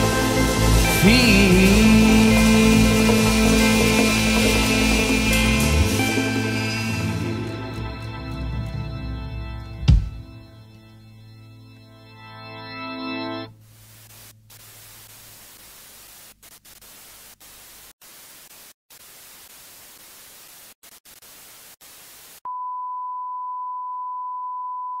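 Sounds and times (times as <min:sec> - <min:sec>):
television static hiss: 0:13.5 - 0:22.4
steady single-pitch test tone: 0:22.5 - 0:25.0.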